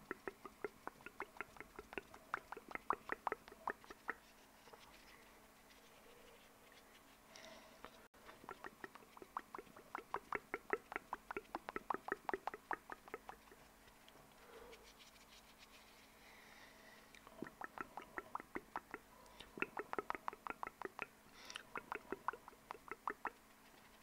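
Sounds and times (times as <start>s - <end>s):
rapid mouth clicks: 0.0s - 4.8s, 8.2s - 13.7s, 17.1s - 24.0s.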